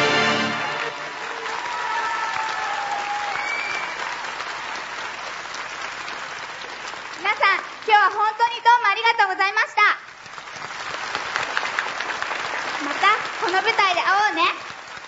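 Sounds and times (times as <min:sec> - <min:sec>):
music: 0:00.0 - 0:01.4
audience applauding: 0:00.0 - 0:15.0.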